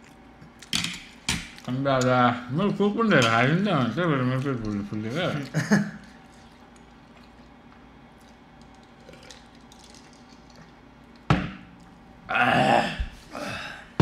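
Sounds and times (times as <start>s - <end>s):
person burping: 12.3s - 14.0s.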